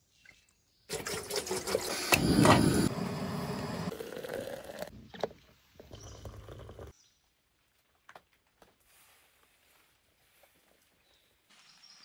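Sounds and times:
coffee pouring into mug: 3.3 - 4.9, 5.8 - 6.9.

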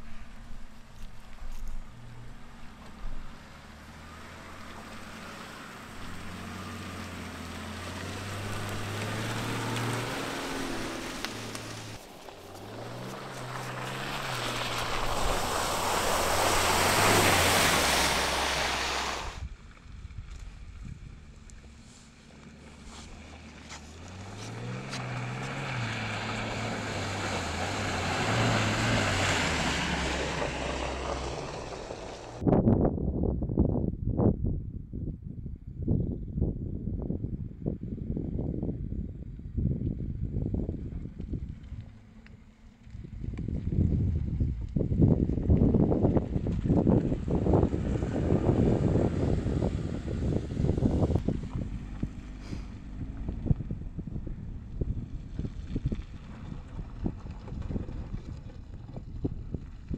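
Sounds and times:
engine running at low revs: 0.0 - 32.5, 36.8 - 59.9
tyres splashing through mud: 1.9 - 32.4, 45.4 - 53.6, 54.9 - 59.9.

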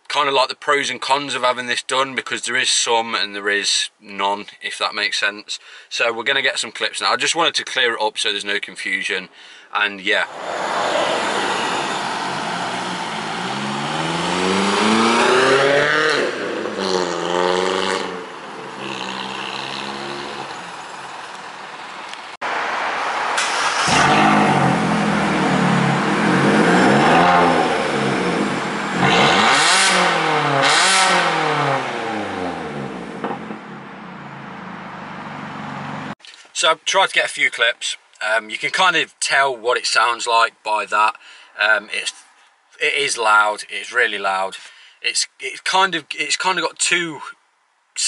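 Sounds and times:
engine rev blips: 10.3 - 22.0, 23.4 - 36.2
loud car engine revving: 10.3 - 22.0, 22.8 - 36.2.

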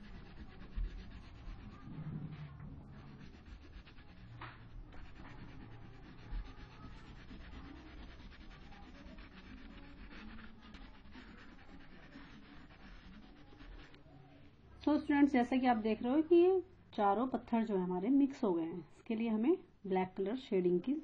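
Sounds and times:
crayon scratching on paper: 0.0 - 14.0.

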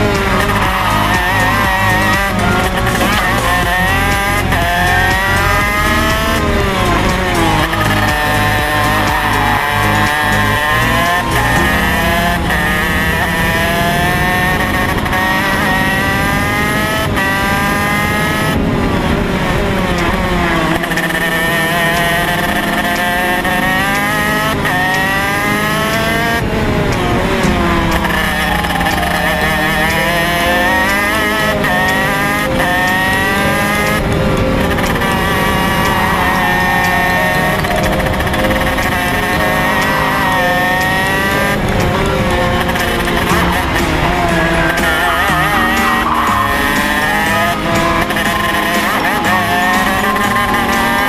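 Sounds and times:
kart engine revving: 0.0 - 51.0.

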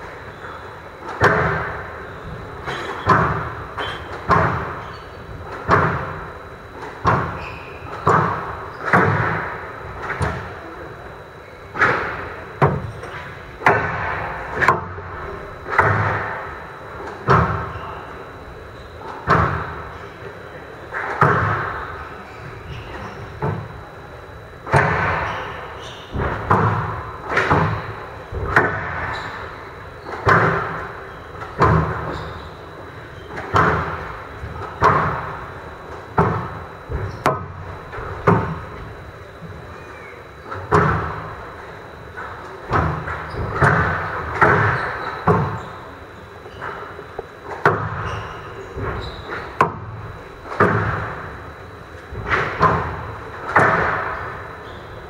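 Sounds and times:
squash ball hitting rackets and walls: 1.0 - 10.6, 11.7 - 17.8, 19.1 - 19.8, 20.9 - 22.0, 24.6 - 32.6, 33.2 - 38.8, 40.5 - 41.3, 42.2 - 45.8, 46.4 - 51.4, 52.1 - 54.9.

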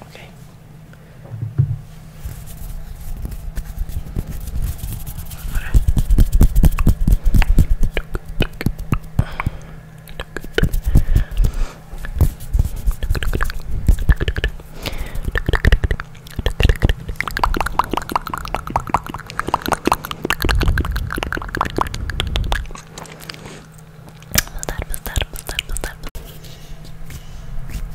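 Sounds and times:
deep rumbles: 15.2 - 24.2.

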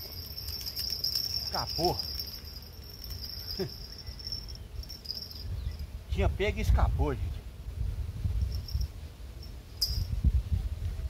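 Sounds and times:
insect chirring: 0.0 - 6.0.

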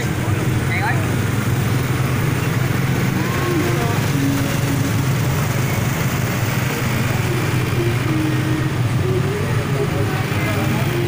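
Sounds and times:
motorbike engines droning: 0.0 - 11.0.

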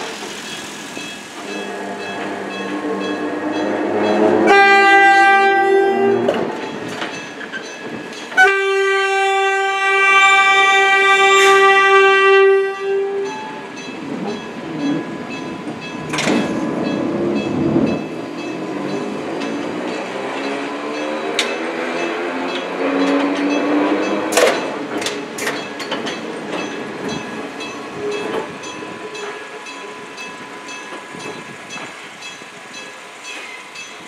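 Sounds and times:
train rumbling on rails: 0.0 - 34.0
electric train horn: 1.4 - 6.7, 8.4 - 13.6.

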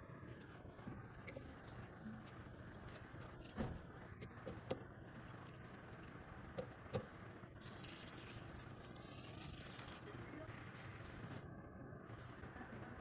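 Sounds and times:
water pouring: 7.6 - 10.0.

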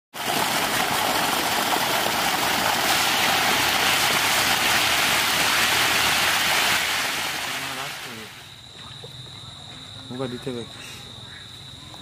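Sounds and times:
fish splashing at water surface: 0.2 - 9.4.

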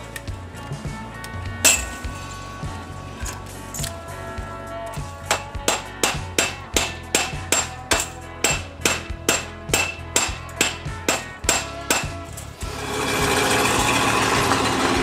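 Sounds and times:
hammer striking steel pipe: 1.6 - 2.0, 5.2 - 15.0.

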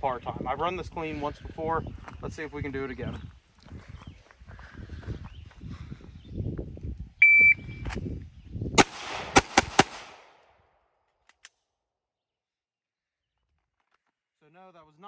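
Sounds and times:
shot timer beep: 7.2 - 7.8
pistol shots: 8.8 - 10.4.

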